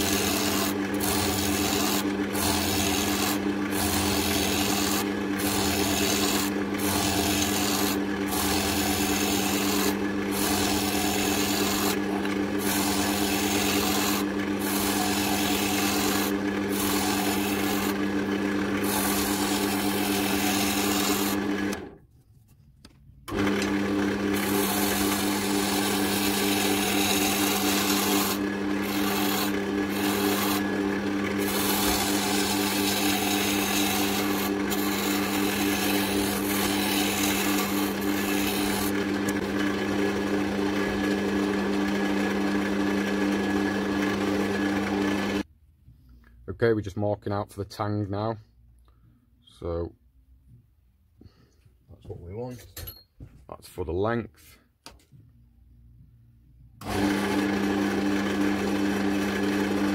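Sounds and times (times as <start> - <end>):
tool scraping spinning wood: 0.0 - 21.9, 23.3 - 45.4
wood lathe humming: 0.0 - 21.9, 23.3 - 45.5, 56.8 - 59.9.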